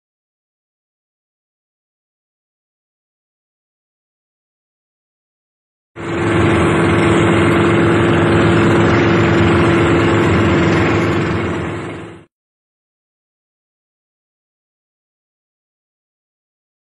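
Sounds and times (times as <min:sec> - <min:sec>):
boat engine running: 0:06.0 - 0:12.3.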